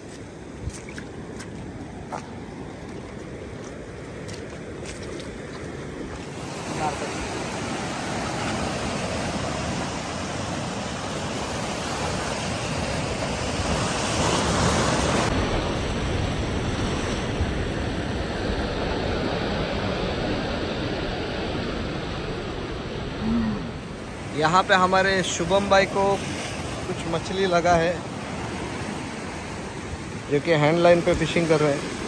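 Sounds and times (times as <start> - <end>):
surf breaking on rocks: 3.0 - 15.4.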